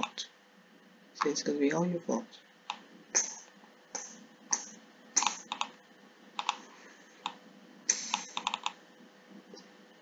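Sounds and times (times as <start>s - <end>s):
keyboard and mouse clicking: 4.0s - 5.8s, 6.4s - 6.6s, 7.2s - 8.8s.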